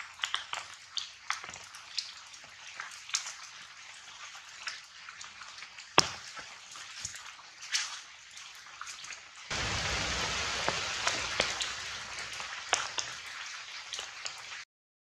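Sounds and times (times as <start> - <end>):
sharp crackles and ticks: 0.0 - 3.4, 9.0 - 14.6
steady outdoor hiss: 9.5 - 13.8.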